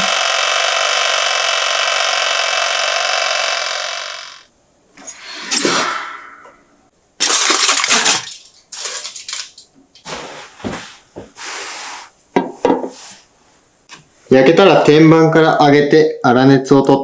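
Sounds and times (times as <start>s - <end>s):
aluminium foil rustling: 7.2s - 10.1s.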